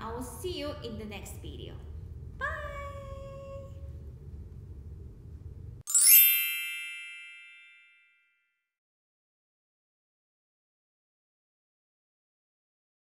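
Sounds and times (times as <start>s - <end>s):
low room noise: 0.0s - 6.6s
bright chime sound effect: 5.9s - 8.4s.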